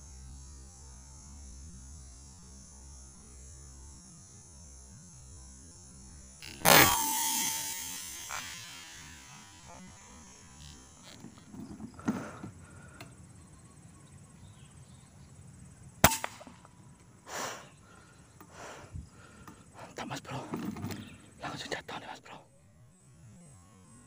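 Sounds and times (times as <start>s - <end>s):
air rifle shot: 6.6s - 9.6s, 16.0s - 16.7s.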